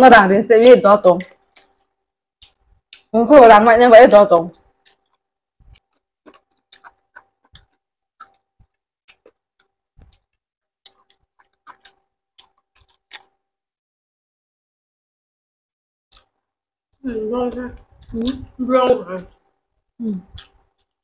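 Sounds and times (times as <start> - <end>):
mouths chewing and sucking: 1.4 - 3.1, 4.6 - 13.4
fingers picking at food: 4.8 - 13.4.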